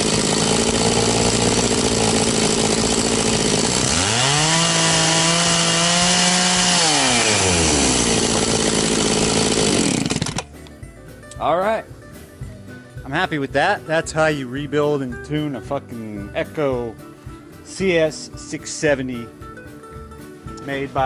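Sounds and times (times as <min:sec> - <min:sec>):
chainsaw idling and revving: 0:00.0 - 0:10.6.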